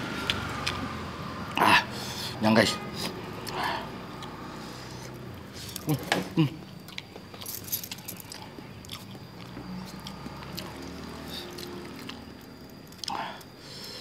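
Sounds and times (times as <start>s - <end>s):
chewing: 6.6s - 13.5s.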